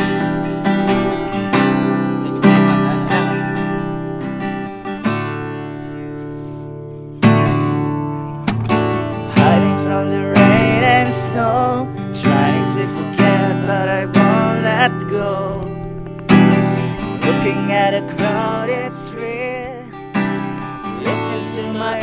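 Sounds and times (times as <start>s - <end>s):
person singing: 0.0s - 4.0s, 9.3s - 15.7s, 16.9s - 22.0s
acoustic guitar strumming: 0.0s - 22.0s.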